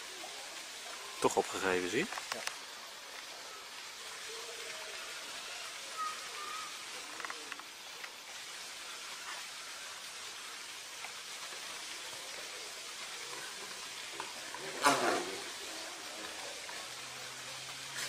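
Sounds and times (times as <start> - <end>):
outdoor background hiss: 0.0 - 18.0
faint clicks: 7.1 - 8.2.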